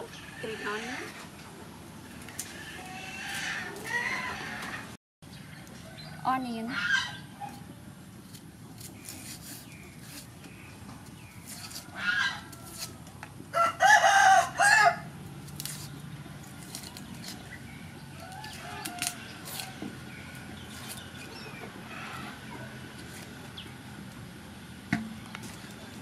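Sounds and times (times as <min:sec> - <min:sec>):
knife scraping onion skin: 0:08.2 - 0:10.6, 0:11.3 - 0:13.1, 0:15.4 - 0:19.8, 0:20.7 - 0:21.1
rooster crowing: 0:11.7 - 0:15.1.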